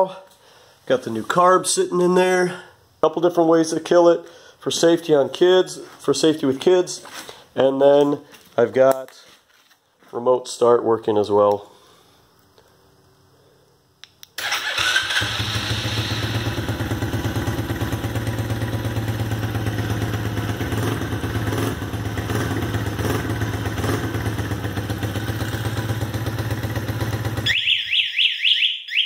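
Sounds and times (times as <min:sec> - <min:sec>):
small engine starting and idling: 0:14.4 - 0:27.5.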